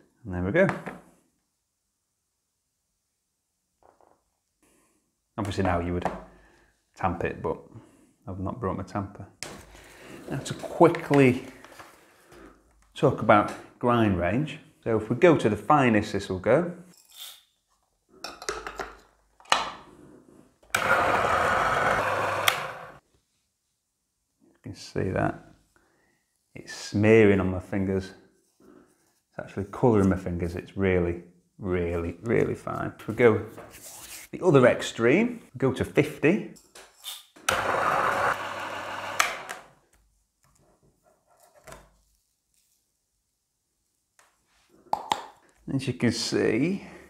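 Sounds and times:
coffee grinder running: 0:20.7 - 0:23.0, 0:37.5 - 0:39.7.

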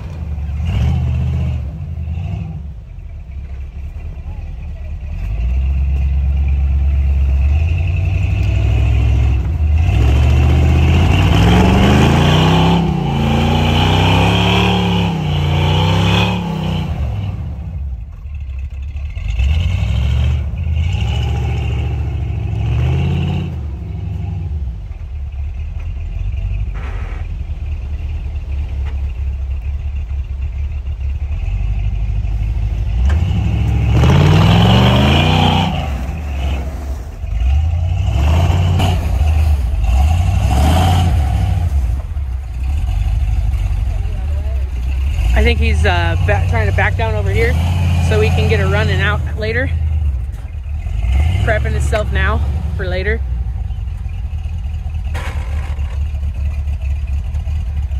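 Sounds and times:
engine revving: 0:00.0 - 0:02.9, 0:05.0 - 0:25.6, 0:31.2 - 0:57.9
tires spinning in snow: 0:00.0 - 0:57.9.

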